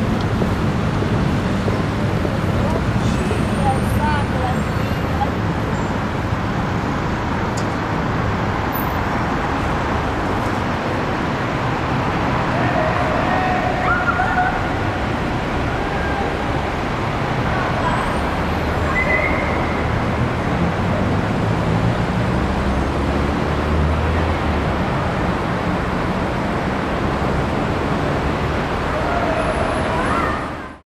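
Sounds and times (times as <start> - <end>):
city traffic noise: 0.0 - 30.8.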